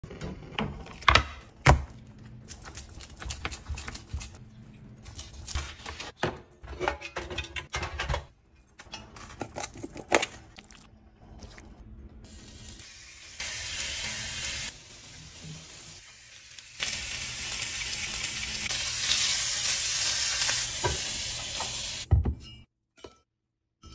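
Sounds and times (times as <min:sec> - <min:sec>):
cookware clinking and rattling: 0:02.5 - 0:10.6.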